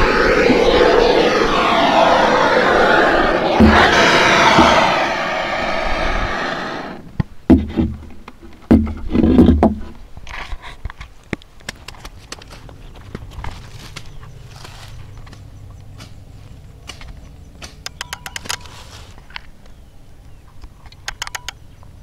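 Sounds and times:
gas blowtorch hissing: 0.0s - 7.0s
small clicks: 20.6s - 21.6s.

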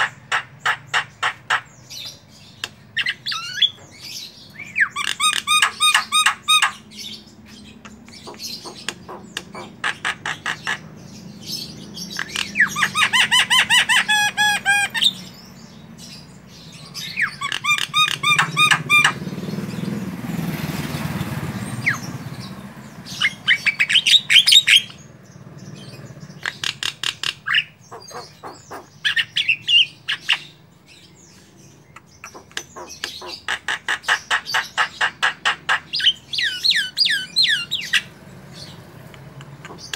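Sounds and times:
bird singing clicks and whistles: 2.0s - 6.7s, 32.0s - 33.3s.

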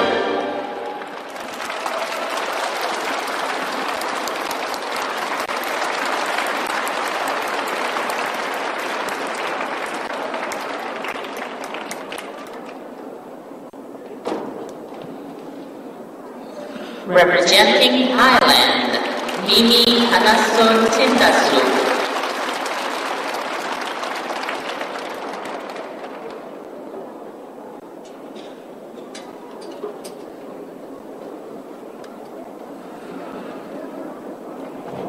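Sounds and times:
audience applauding: 0.0s - 13.8s, 18.8s - 27.9s.

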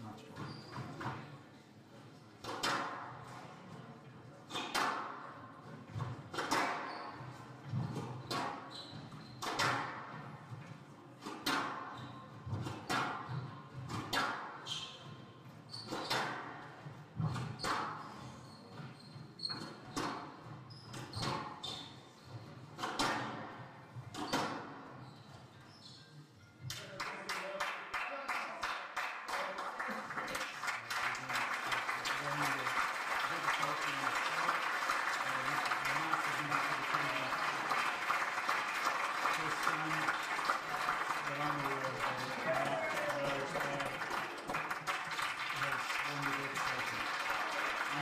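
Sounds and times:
shoe squeaks on wooden floor: 0.4s - 1.0s.

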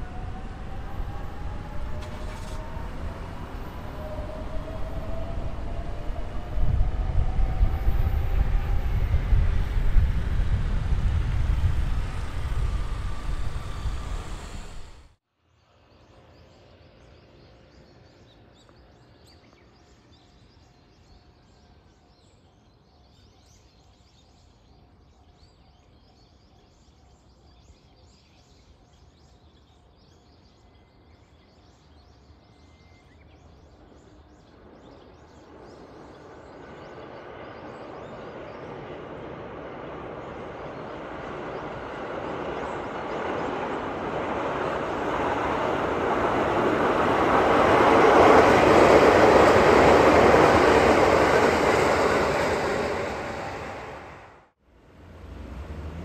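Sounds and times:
electric train rumbling: 0.0s - 15.2s, 33.4s - 56.0s
train motor whine: 0.0s - 15.2s
distant town ambience: 0.0s - 56.0s.

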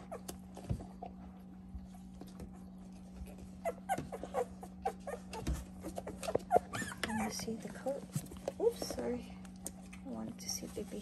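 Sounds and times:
puppies whimpering: 0.0s - 0.4s, 2.4s - 8.0s.

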